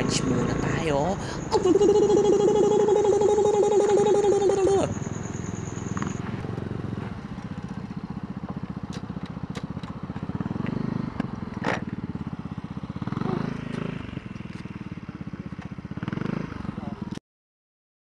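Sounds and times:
motorcycle engine idling: 0.0s - 17.2s
gravel crackling under tyres: 3.7s - 17.2s.

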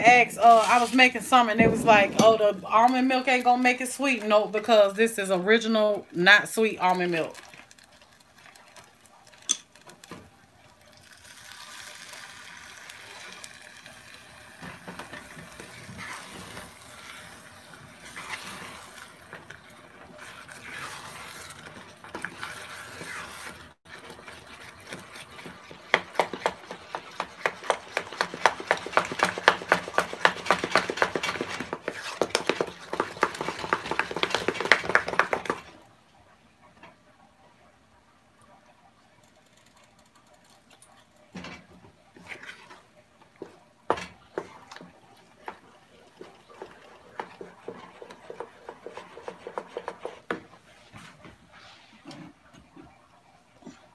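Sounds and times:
wooden spoon scraping and knocking pot: 0.0s - 4.8s, 14.6s - 35.8s, 41.3s - 52.9s
milk pouring into saucepan: 7.2s - 35.9s, 40.0s - 51.6s.

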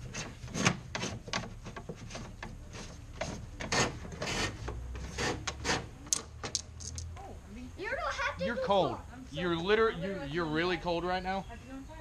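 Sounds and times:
rod scraping against metal hull: 0.0s - 6.0s.

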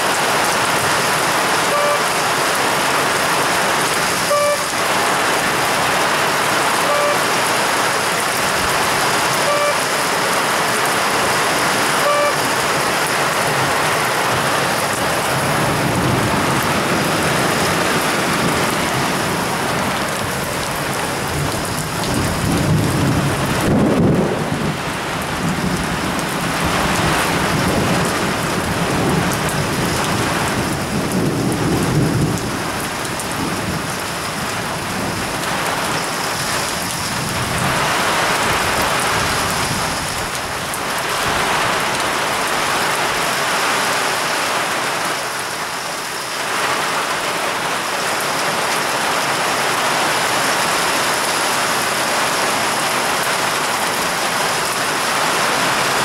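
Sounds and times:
heavy rain hissing: 0.0s - 56.0s.

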